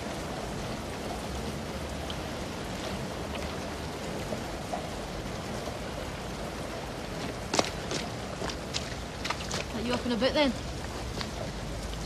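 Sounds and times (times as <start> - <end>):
steady rain: 0.0 - 12.0
faint light ticks: 2.0 - 2.3.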